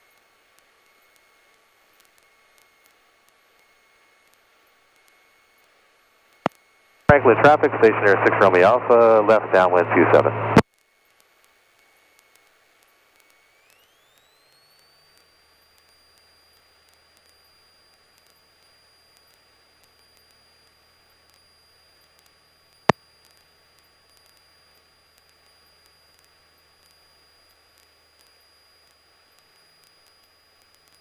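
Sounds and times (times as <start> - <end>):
faint low hum: 7.1 - 10.6
high-pitched whine: 7.1 - 10.6
radio hiss: 7.1 - 10.6.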